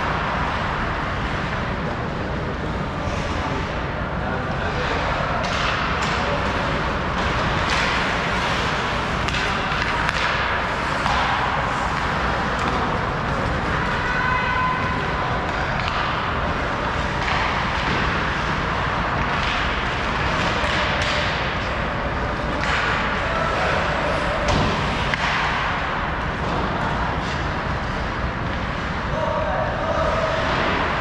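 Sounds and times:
sticks and puck knocking: 7.2s - 12.8s.

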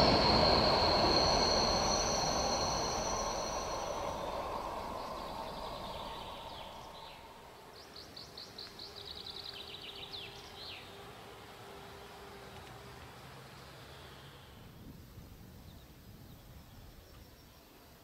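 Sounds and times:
train rumbling: 0.0s - 13.8s
songbird singing: 0.0s - 18.0s.

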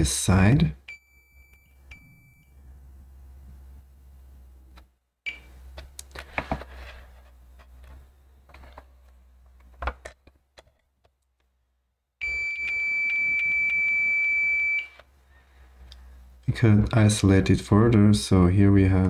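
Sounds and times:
multimeter continuity beep: 0.9s - 2.6s, 12.2s - 15.0s.

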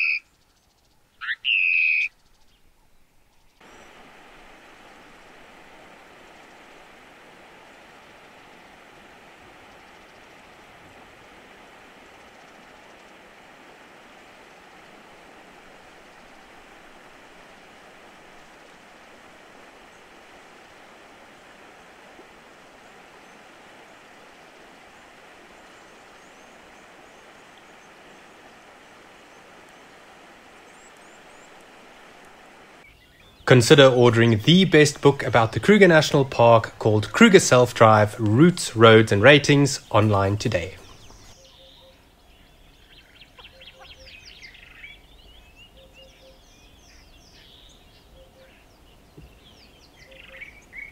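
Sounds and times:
soft low bird call: 0.0s - 0.3s, 1.2s - 3.0s, 39.8s - 50.9s
outdoor ambient hiss: 0.0s - 50.9s
birds chirping and whistling: 1.2s - 2.6s, 39.9s - 50.9s.

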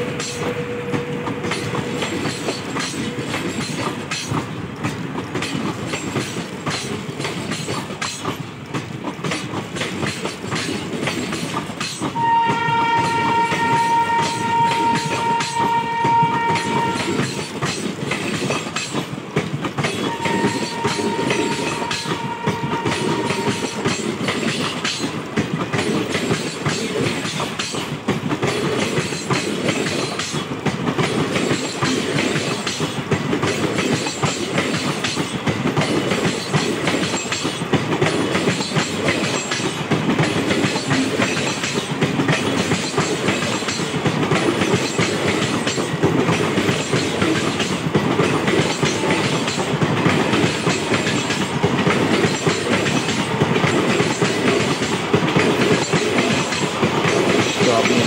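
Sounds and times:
train wheels on rails: 0.0s - 58.0s.

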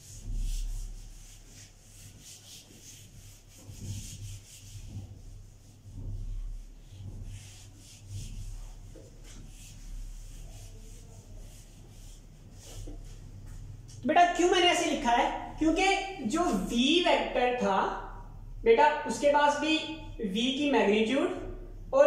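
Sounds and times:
eraser rubbing on whiteboard: 0.0s - 13.8s
low electrical hum: 0.0s - 22.0s.

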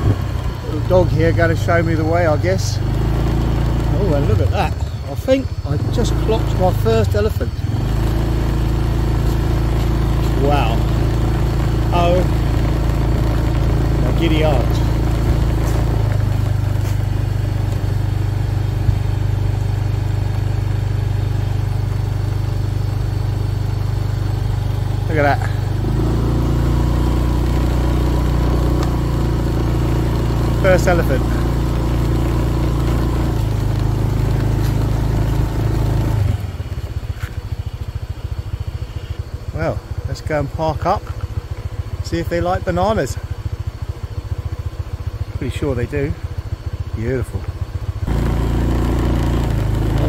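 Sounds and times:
small motorbike engine running: 0.0s - 50.0s.

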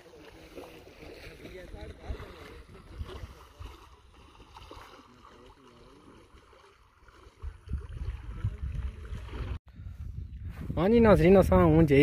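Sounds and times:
floodwater rushing: 0.0s - 9.6s
wind gusting on microphone: 7.2s - 12.0s.

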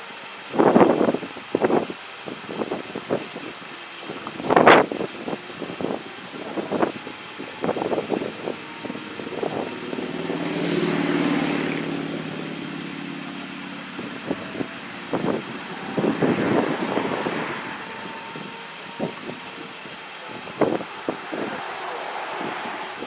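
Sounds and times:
vehicle passing: 5.8s - 23.0s.

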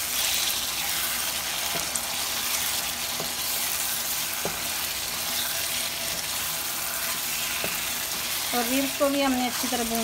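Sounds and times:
meat sizzling in a wok: 0.0s - 10.0s
wooden spatula knocking on pan: 4.4s - 4.7s.

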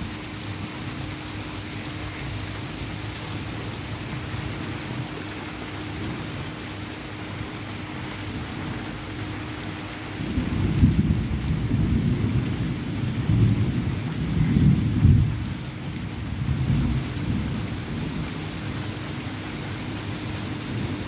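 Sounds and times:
rain falling: 0.0s - 21.0s
rolling thunder: 10.2s - 18.4s.

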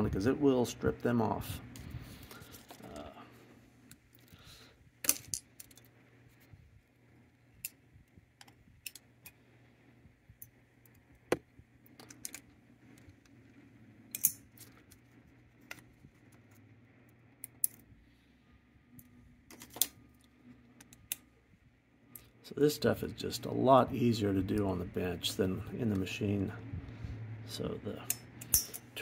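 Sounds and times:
screwdriver and nuts clinking on metal: 5.0s - 5.9s, 14.1s - 15.0s, 28.0s - 29.0s.

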